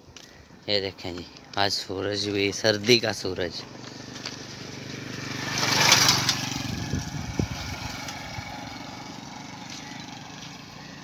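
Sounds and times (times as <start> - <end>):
passing vehicle engine: 3.5 - 11.0.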